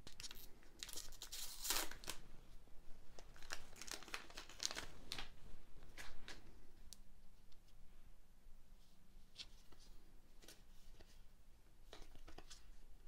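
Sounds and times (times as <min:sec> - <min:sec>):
foil wrapper crinkling and tearing: 0:00.1 - 0:02.2, 0:03.2 - 0:05.3.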